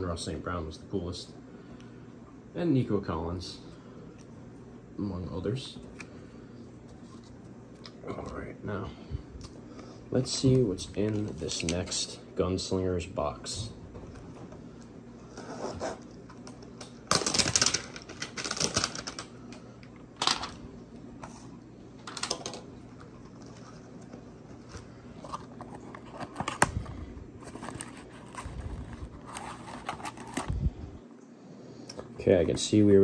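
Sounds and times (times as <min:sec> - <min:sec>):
cardboard box rustling and tearing: 0:27.5 - 0:30.5.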